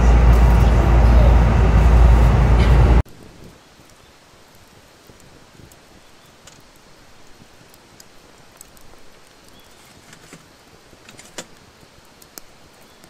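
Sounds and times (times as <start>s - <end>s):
low hiss of fire: 2.5s - 13.0s
wood fire crackling and popping: 3.0s - 13.0s.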